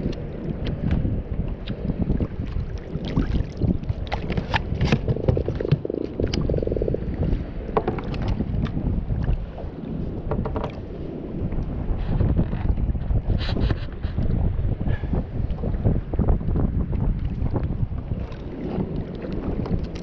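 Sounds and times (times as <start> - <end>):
water lapping around kayak: 0.0 - 20.0
wind buffeting microphone: 0.0 - 20.0
fishing gear knocks and clicks: 4.0 - 6.4.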